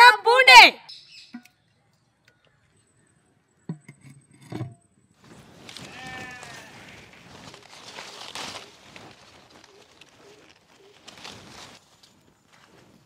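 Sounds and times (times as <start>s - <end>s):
goat bleating: 5.8s - 7.0s.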